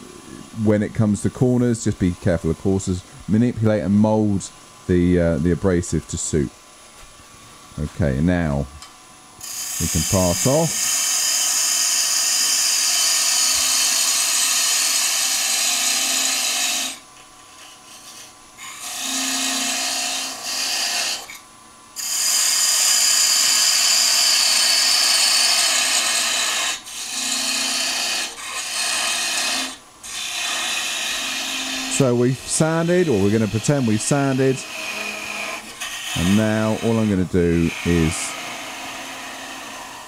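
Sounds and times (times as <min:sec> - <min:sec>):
low steady lathe hum: 0:00.0 - 0:40.0
parting tool scraping spinning wood: 0:25.5 - 0:40.0.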